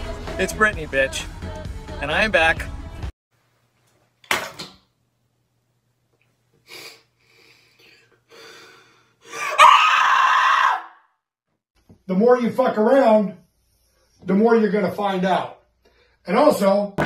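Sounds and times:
woman breathing sharply: 7.2 - 9.4
woman screaming: 9.3 - 11.0.

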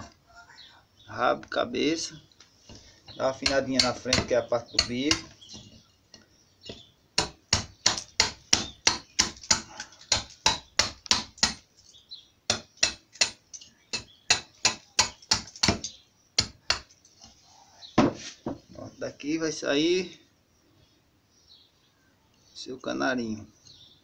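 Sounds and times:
hatchet chopping wood: 3.3 - 5.7, 6.7 - 11.6, 12.5 - 16.9.

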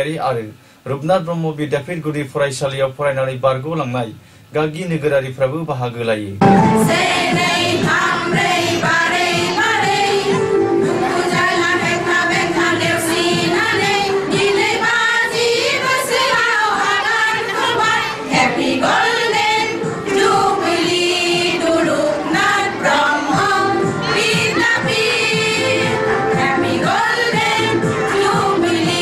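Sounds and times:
women singing together: 6.9 - 29.0.

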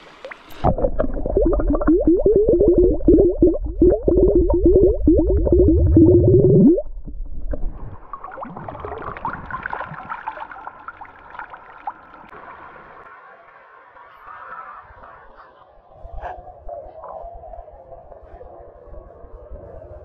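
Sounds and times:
water pouring and splashing: 0.0 - 12.5
bottle glugging underwater: 0.3 - 11.5.

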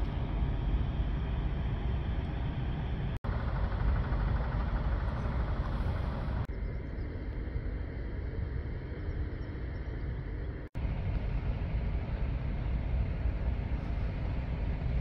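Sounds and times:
low outdoor rumble and hiss: 0.0 - 15.0.

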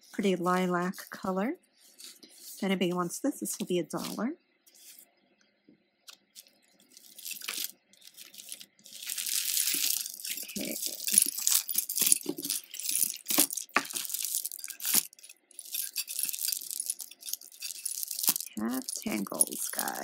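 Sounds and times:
jewelry chains jangling: 6.4 - 20.0.

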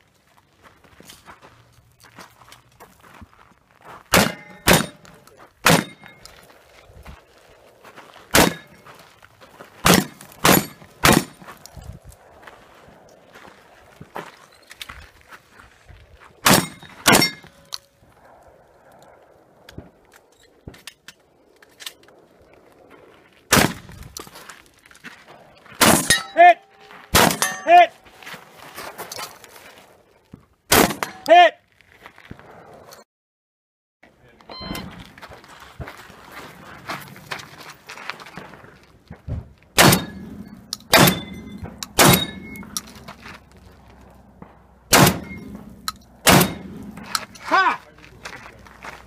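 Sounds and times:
gunshots: 4.1 - 6.2, 8.3 - 8.8, 9.8 - 11.5, 16.4 - 17.6, 23.5 - 24.0, 25.8 - 26.5, 27.1 - 27.9, 30.7 - 31.4, 39.8 - 42.8, 44.4 - 47.4
shotgun shots: 4.1 - 6.2, 8.3 - 8.8, 9.8 - 11.5, 16.4 - 17.5, 23.5 - 23.9, 25.8 - 26.4, 27.1 - 27.8, 30.7 - 31.3, 39.8 - 42.8, 44.4 - 47.2
steel targets clanging: 4.2 - 6.3, 8.4 - 8.9, 9.9 - 11.4, 16.5 - 17.8, 25.8 - 28.0, 39.8 - 43.1, 44.9 - 47.5.

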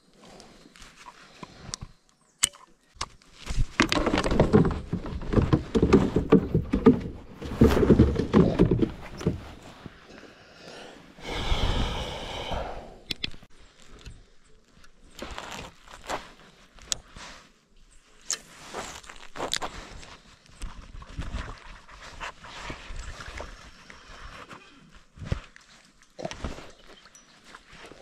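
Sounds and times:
thumping and rattling on plastic kayak: 3.5 - 10.0.

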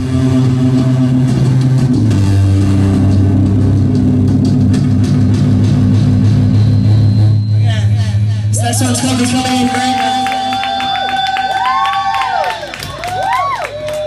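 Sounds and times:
amplified guitar drone: 0.0 - 11.2.

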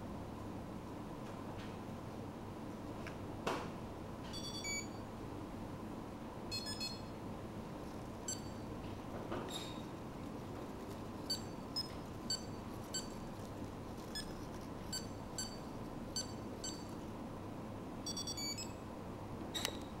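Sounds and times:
high electronic beeps: 6.5 - 7.1, 14.9 - 16.9, 18.1 - 18.8.

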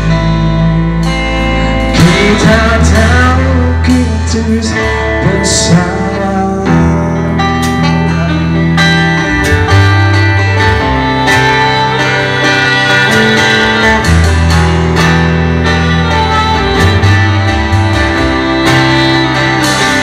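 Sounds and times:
bass notes: 0.0 - 20.0
electric guitar: 0.0 - 20.0
steady drum beat: 0.0 - 20.0.

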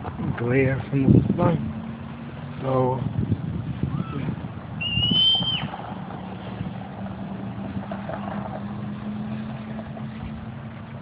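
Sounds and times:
vehicle engine running: 0.0 - 11.0
high whistled note: 4.8 - 5.7.

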